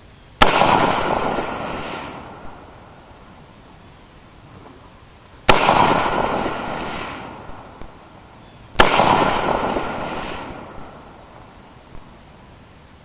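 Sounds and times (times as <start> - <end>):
rifle shots with echo: 0.4 - 2.8, 5.5 - 8.1, 8.8 - 12.1.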